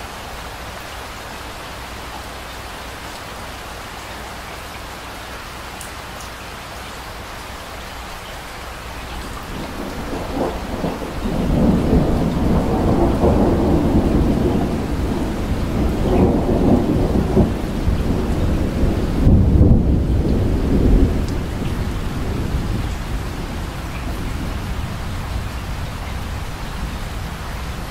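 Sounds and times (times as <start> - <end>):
steady rain: 0.0 - 27.9
thunder rolling: 9.2 - 27.9.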